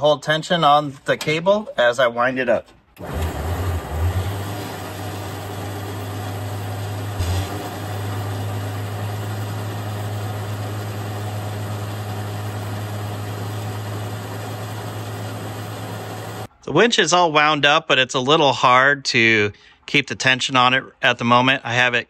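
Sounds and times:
truck engine running: 3.0s - 16.5s
winch winding cable: 3.0s - 16.5s.

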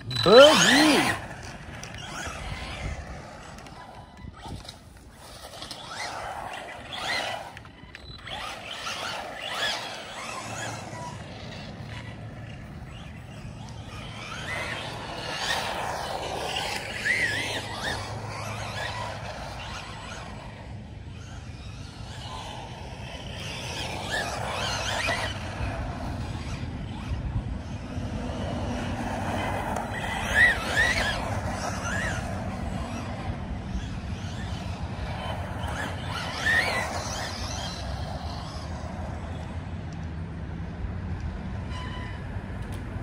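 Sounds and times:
tyre squeals: 0.0s - 1.2s
electric motor whining: 0.0s - 39.5s.

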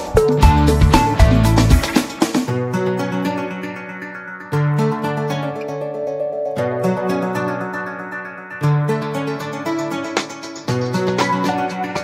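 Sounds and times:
background music with beat and bass: 0.0s - 3.8s, 9.2s - 12.0s.

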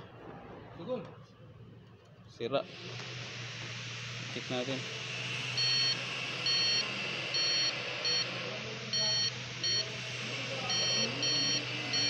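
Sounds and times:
circuit tester beeping: 5.6s - 12.0s.

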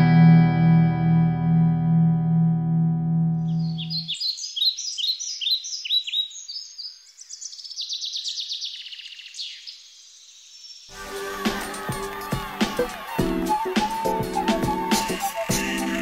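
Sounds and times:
music: 0.0s - 3.5s, 10.9s - 16.0s
bird chirping and trilling: 3.5s - 10.9s.

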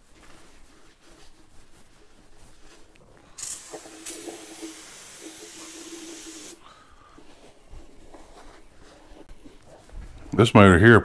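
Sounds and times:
aerosol spray hiss: 3.4s - 6.6s.

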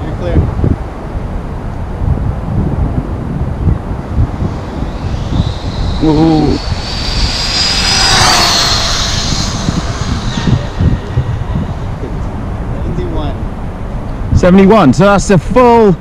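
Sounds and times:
rc car motor whining past: 3.8s - 13.0s.

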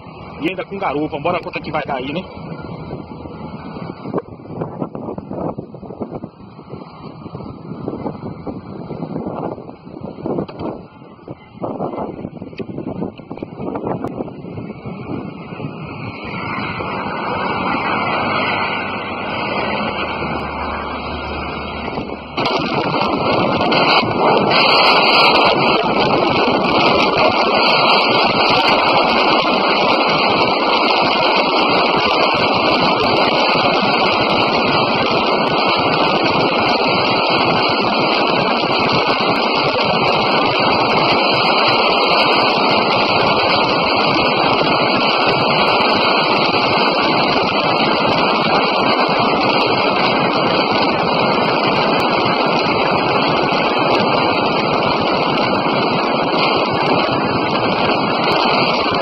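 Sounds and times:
wind roar on microphone: 0.0s - 59.0s
motorcycle engine at high revs: 15.0s - 59.0s.

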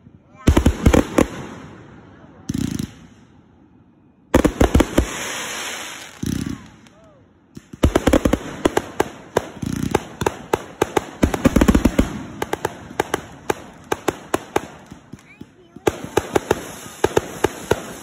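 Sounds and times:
firework cake shots and pops: 4.4s - 18.0s.

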